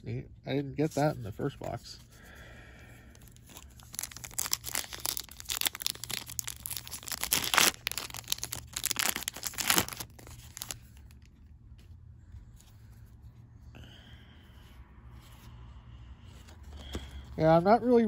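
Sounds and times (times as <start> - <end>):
foil wrapper crinkling and tearing: 3.2 - 11.4.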